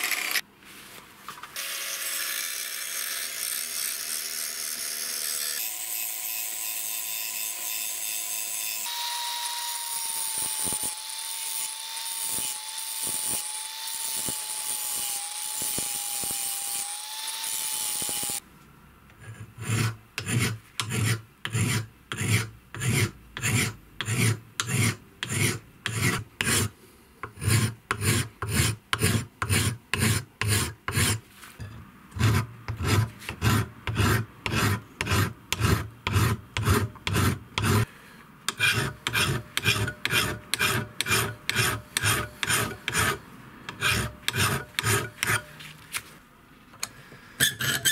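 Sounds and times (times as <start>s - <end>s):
angle grinder cutting steel: 0.0s - 0.4s, 1.6s - 18.4s, 38.5s - 45.5s
hand file rasping steel: 19.2s - 31.2s, 32.1s - 37.9s, 38.5s - 45.6s, 47.4s - 47.9s.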